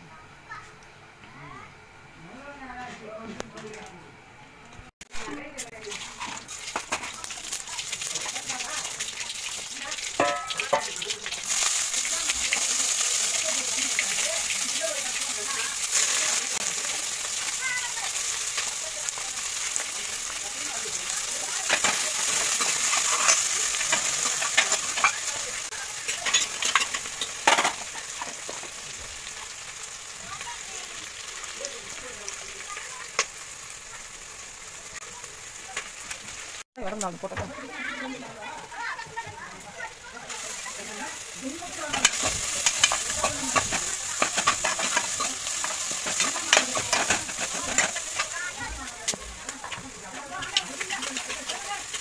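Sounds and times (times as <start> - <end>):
onions sizzling in hot oil: 5.2 - 52.0
ladle scraping and clinking pan: 10.2 - 11.0, 21.7 - 25.4, 26.1 - 28.5, 41.9 - 48.4.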